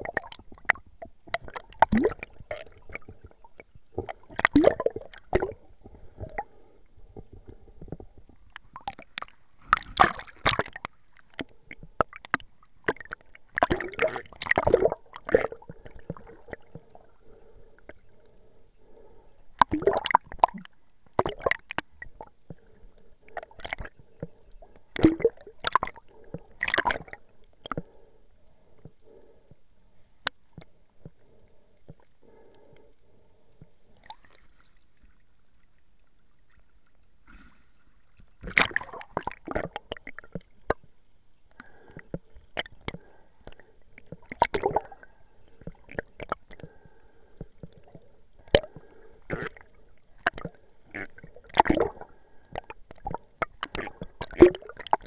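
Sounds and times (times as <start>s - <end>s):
bubbling: 0.0s - 28.1s, 38.4s - 40.9s, 41.5s - 55.0s
faint steady hum: 0.0s - 55.0s
water gurgling and sloshing: 0.0s - 55.0s.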